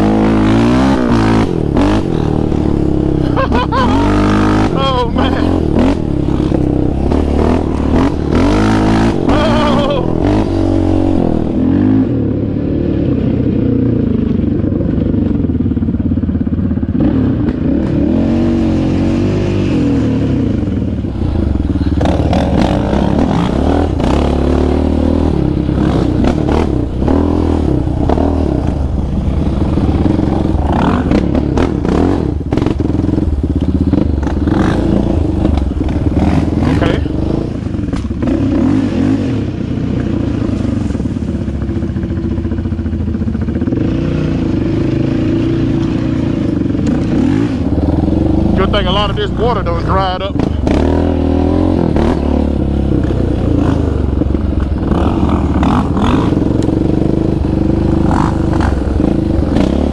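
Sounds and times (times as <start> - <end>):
quad engine revving: 0.0 - 14.2, 17.0 - 40.9, 43.5 - 59.9
quad rattling over rough ground: 20.6 - 38.4, 39.6 - 59.9.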